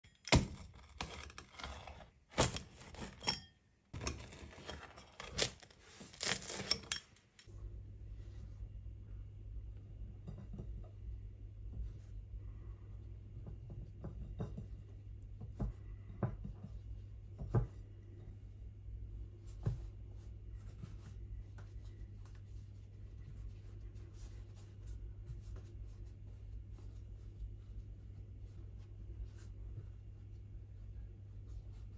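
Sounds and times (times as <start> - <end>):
low steady hum: 0.0 - 31.9
pizza cutter crunching crust: 0.2 - 3.4, 4.0 - 7.0.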